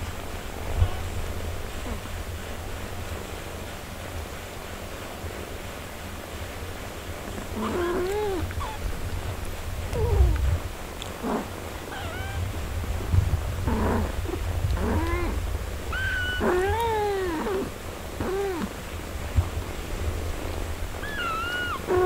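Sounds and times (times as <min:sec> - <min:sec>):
steady low rumble: 0:06.4 - 0:22.0
kittens mewing: 0:07.4 - 0:09.0, 0:09.9 - 0:12.6, 0:13.7 - 0:18.9, 0:21.0 - 0:22.0.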